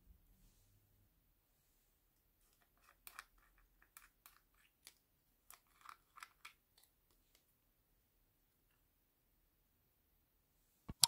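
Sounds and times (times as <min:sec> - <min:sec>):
plastic screw caps clicking: 0:02.6 - 0:06.9.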